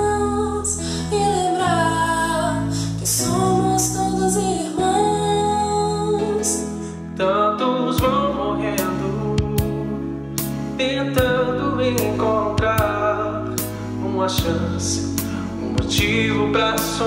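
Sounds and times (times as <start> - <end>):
woman singing: 0.0 - 9.8
held bass notes: 7.1 - 17.0.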